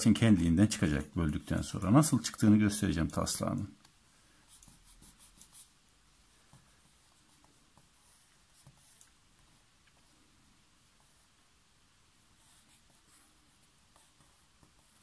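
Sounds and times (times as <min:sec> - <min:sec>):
pencil scratching on paper: 0:04.4 - 0:05.8, 0:12.4 - 0:15.0.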